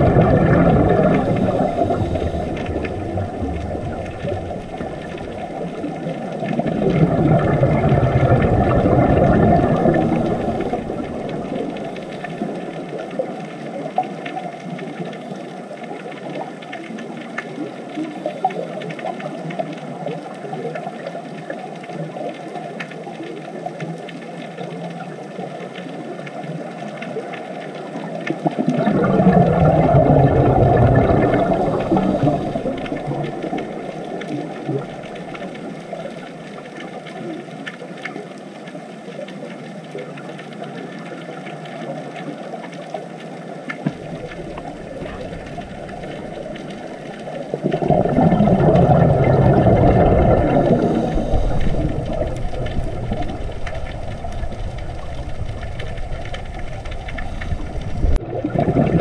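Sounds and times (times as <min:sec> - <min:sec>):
underwater rushing: 0:00.0 - 0:59.0
water bubbling and churning: 0:00.0 - 0:59.0.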